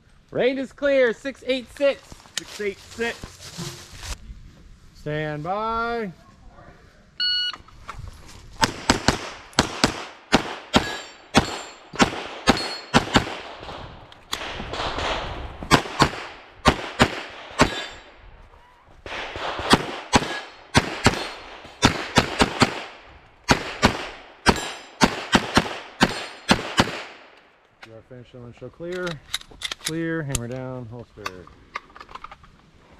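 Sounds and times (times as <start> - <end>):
pistol shots: 8.6 - 18.1, 19.1 - 27.2.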